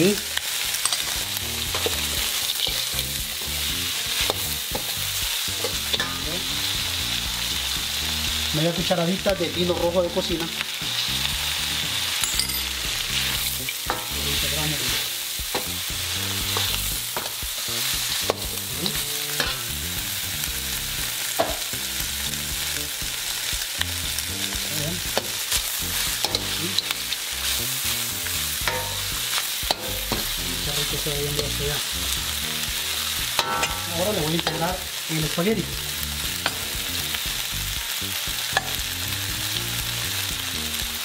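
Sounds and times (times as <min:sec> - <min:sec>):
food sizzling in wok: 0:00.0 - 0:41.0
metal ladle scraping wok: 0:28.5 - 0:30.7, 0:33.4 - 0:34.7.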